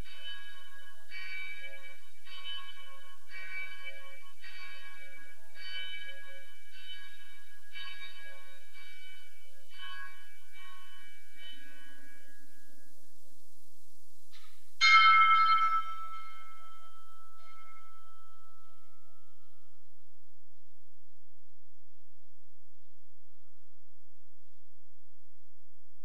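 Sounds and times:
church bell ringing: 0:00.0 - 0:12.7, 0:14.8 - 0:19.6.

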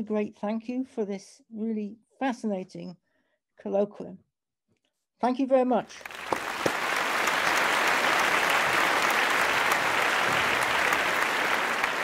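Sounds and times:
crowd applauding: 0:06.0 - 0:12.0.

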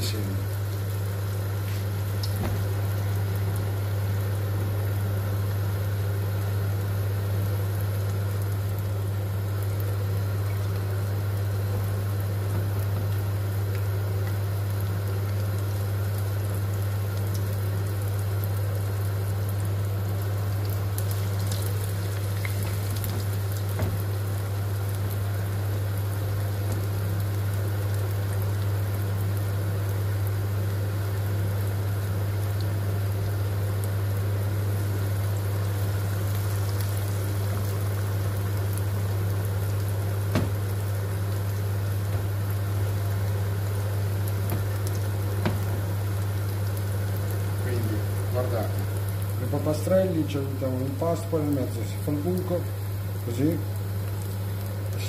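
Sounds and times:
dough frying in sizzling oil: 0:00.0 - 0:55.0
steady low hum: 0:00.0 - 0:55.0.

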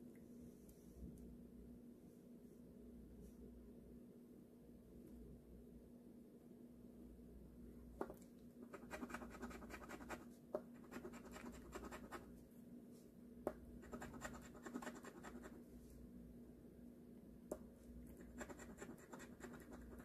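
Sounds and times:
scratching lottery ticket: 0:08.7 - 0:10.2, 0:13.9 - 0:15.6, 0:18.2 - 0:20.0.

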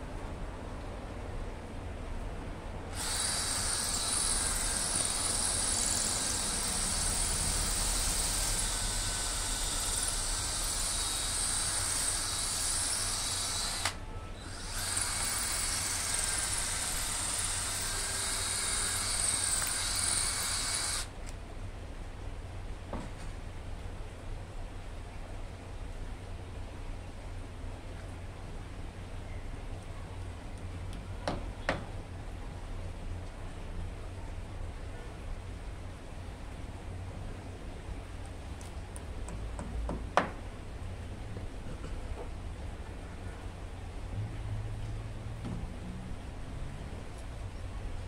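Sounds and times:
cordless drill running under load: 0:02.9 - 0:21.1.

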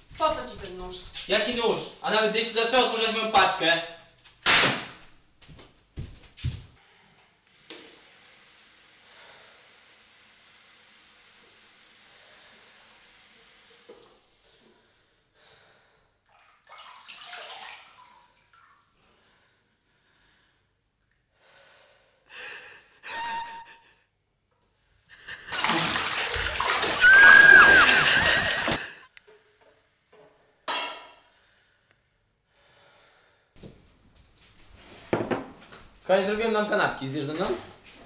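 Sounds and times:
running water hissing: 0:07.5 - 0:14.6, 0:25.3 - 0:29.1.

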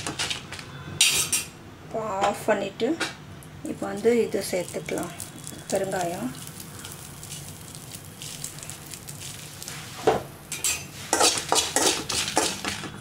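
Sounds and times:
faint sizzle: 0:03.6 - 0:11.9.

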